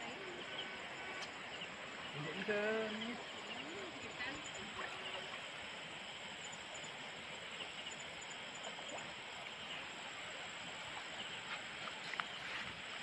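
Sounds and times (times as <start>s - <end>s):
stream water rushing: 0.0s - 13.0s
faint ticks: 1.1s - 1.5s, 11.4s - 12.8s.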